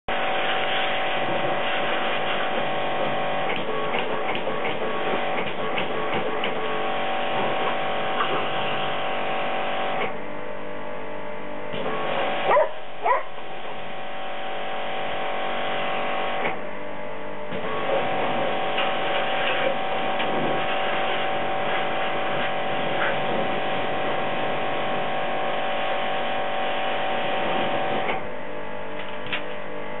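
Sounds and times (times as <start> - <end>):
pressure washer whining: 0.1 - 10.2, 11.8 - 16.6, 17.5 - 28.4
dog barking: 12.4 - 13.4.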